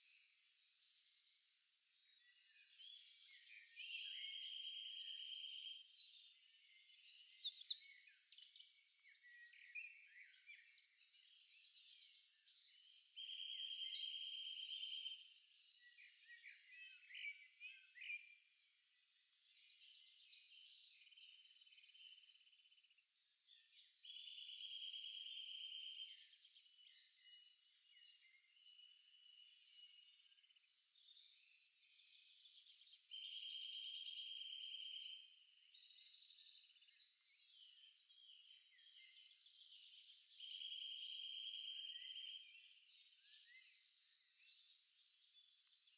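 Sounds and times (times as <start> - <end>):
birds chirping: 9.8 - 15.3.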